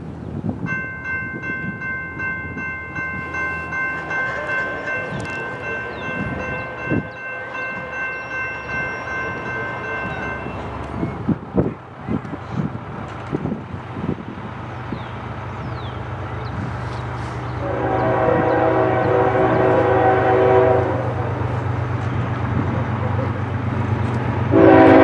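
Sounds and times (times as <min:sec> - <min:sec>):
train rumble: 0:00.0 - 0:25.0
locomotive air horn: 0:17.6 - 0:21.4, 0:24.5 - 0:25.0.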